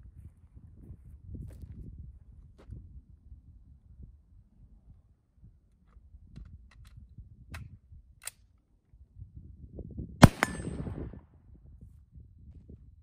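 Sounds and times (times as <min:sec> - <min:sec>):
gunshots: 0:10.2 - 0:11.1.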